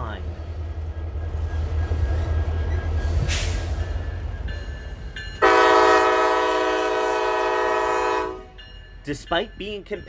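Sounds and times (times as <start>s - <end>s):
diesel locomotive rumbling: 0.0s - 10.0s
train air horn chord: 5.4s - 8.5s.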